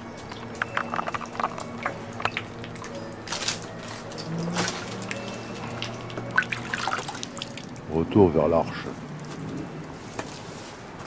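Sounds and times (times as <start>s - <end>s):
water dripping into plastic basin: 0.0s - 3.0s.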